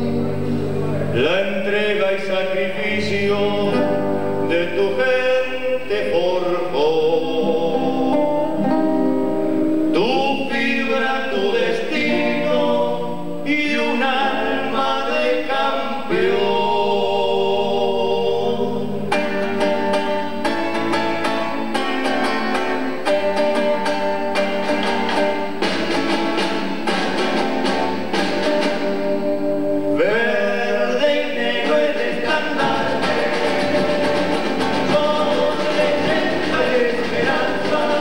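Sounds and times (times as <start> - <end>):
person singing: 0.0 - 19.4, 29.9 - 38.0
strummed guitar chords: 0.0 - 38.0.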